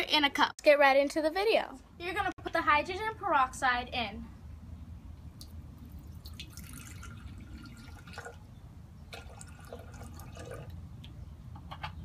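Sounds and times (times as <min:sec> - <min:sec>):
liquid pouring into glass: 0:06.0 - 0:08.4, 0:09.1 - 0:10.8.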